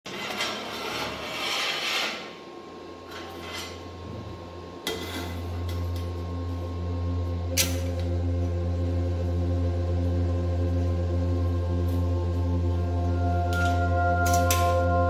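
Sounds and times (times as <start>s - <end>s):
metal bar scraping on grille: 0.1s - 2.4s, 3.1s - 3.8s, 4.8s - 5.6s
steady low hum: 0.2s - 15.0s.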